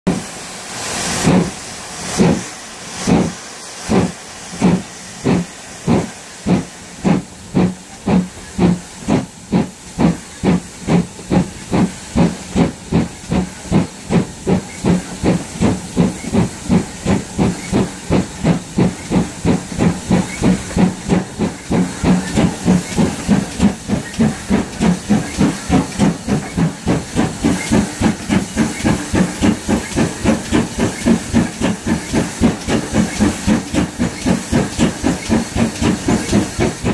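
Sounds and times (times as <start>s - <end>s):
steam engine exhaust chuffing: 0.1s - 36.9s
steam hissing: 0.1s - 36.9s.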